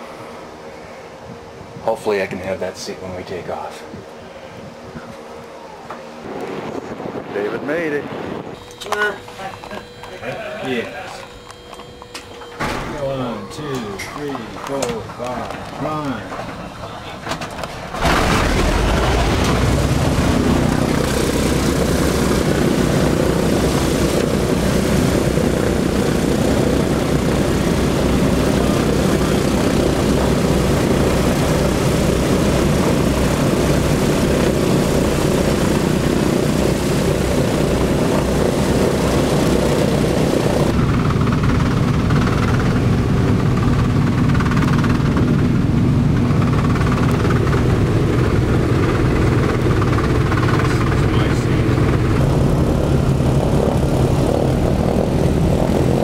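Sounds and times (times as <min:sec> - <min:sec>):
propeller engines droning: 0:00.0 - 0:56.0.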